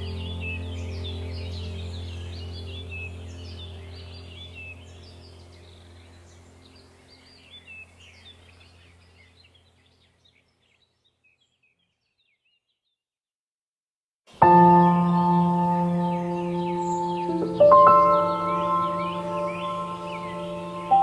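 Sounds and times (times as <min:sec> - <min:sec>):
low steady drone: 0:00.0 - 0:09.2, 0:14.4 - 0:21.0
small birds chirping: 0:00.0 - 0:13.0, 0:14.3 - 0:21.0.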